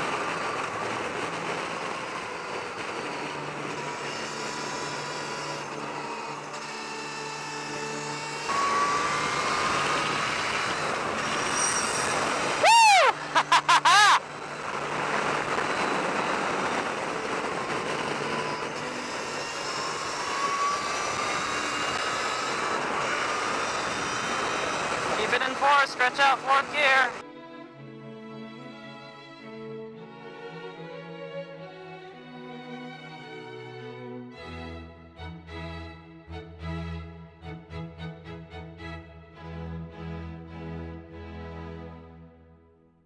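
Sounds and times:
wind rush: 0:00.0 - 0:03.9, 0:09.2 - 0:27.2.

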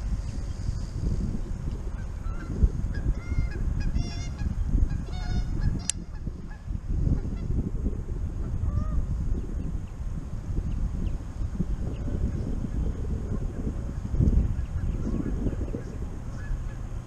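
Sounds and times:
steady low rumble: 0:00.0 - 0:17.0
geese honking: 0:02.0 - 0:06.6
sharp click: 0:05.8 - 0:06.0.

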